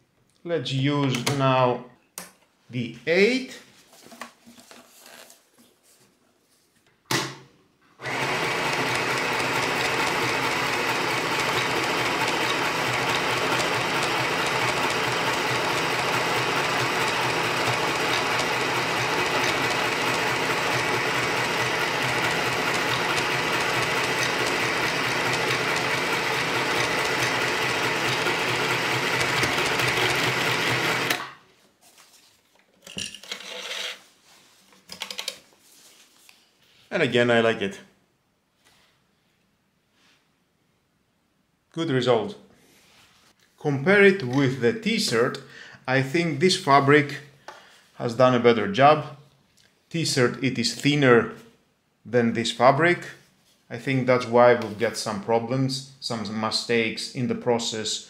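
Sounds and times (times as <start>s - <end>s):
sewing machine stitching: 8.0s - 31.4s.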